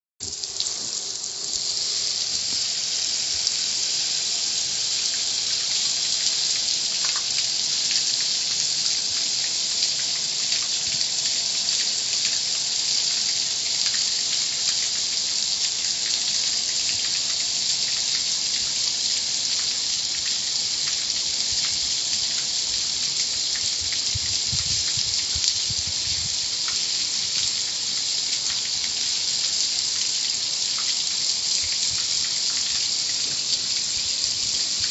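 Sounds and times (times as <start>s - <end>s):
water jets spraying: 0.2s - 12.6s, 30.8s - 34.9s.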